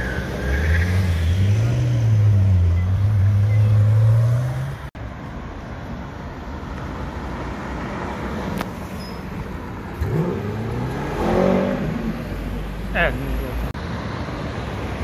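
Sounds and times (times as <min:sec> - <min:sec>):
road and traffic noise: 0:00.0 - 0:15.0
sports car engine: 0:09.5 - 0:14.2
car accelerating away: 0:09.9 - 0:12.3.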